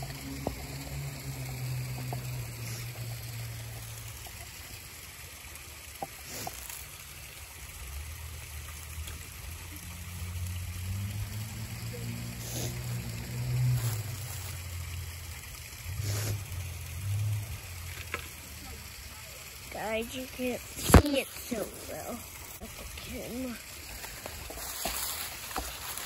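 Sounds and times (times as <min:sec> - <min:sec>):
creek water trickling: 0:00.0 - 0:26.0.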